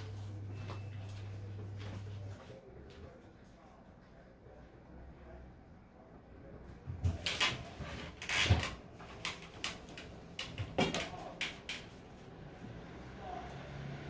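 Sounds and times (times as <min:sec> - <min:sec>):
objects knocking and clattering: 0:08.4 - 0:11.8.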